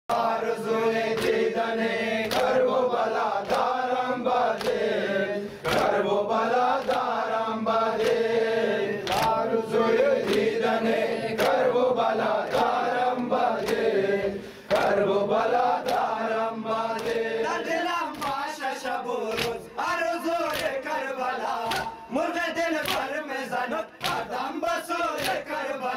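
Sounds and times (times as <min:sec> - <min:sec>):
men chanting in unison: 0:00.1 - 0:25.9
hands slapping chests: 0:01.1 - 0:01.5, 0:02.2 - 0:03.8, 0:04.5 - 0:04.9, 0:05.6 - 0:06.0, 0:06.7 - 0:07.3, 0:08.0 - 0:08.2, 0:09.0 - 0:09.5, 0:10.1 - 0:10.6, 0:11.4 - 0:11.7, 0:12.4 - 0:13.9, 0:14.7 - 0:15.0, 0:15.8 - 0:16.2, 0:16.9 - 0:17.2, 0:18.1 - 0:18.5, 0:19.3 - 0:19.7, 0:20.4 - 0:20.8, 0:21.6 - 0:22.0, 0:22.8 - 0:23.1, 0:24.0 - 0:24.4, 0:25.1 - 0:25.5.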